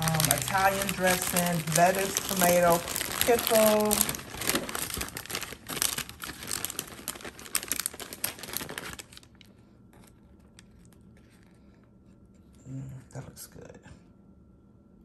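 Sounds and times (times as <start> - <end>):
paper wrapper crinkling: 0.0 - 11.7.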